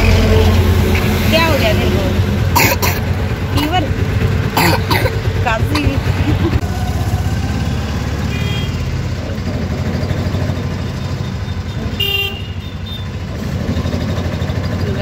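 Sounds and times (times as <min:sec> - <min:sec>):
auto-rickshaw engine running: 0:00.0 - 0:15.0
vehicle horn honking: 0:08.2 - 0:09.0, 0:11.6 - 0:13.2.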